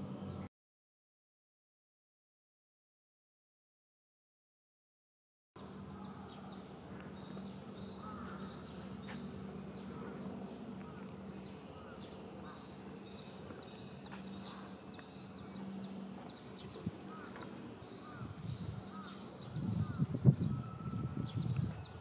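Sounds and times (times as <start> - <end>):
small birds chirping: 5.6 - 22.0
steady low hum: 5.6 - 22.0.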